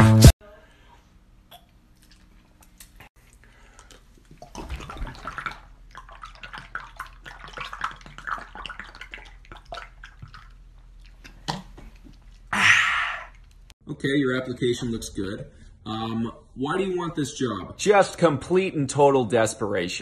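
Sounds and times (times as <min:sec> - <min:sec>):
man gulping: 0:01.4 - 0:13.7
liquid glugging from plastic bottle: 0:03.4 - 0:12.5.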